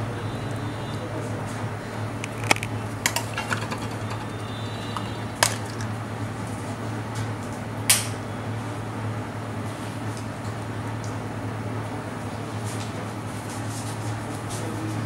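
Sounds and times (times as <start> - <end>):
utensils clacking on cutting board: 2.2 - 5.8.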